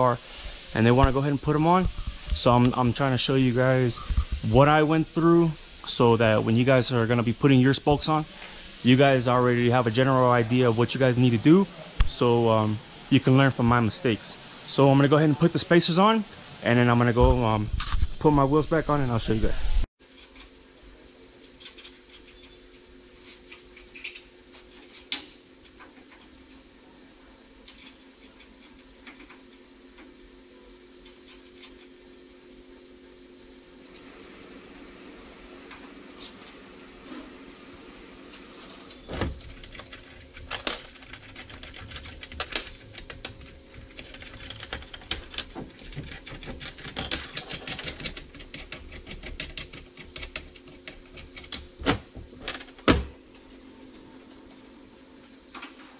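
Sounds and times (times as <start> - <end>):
repair shop hum: 0.0 - 55.9
metal parts and tools clinking: 23.8 - 25.5, 38.9 - 50.1.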